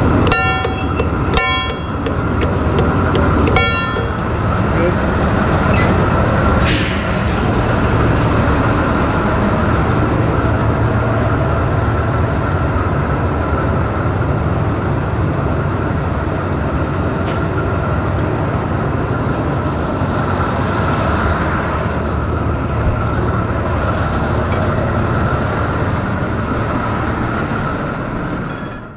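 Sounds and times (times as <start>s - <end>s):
crane engine running: 0.0s - 28.9s
short hiss: 6.6s - 7.4s.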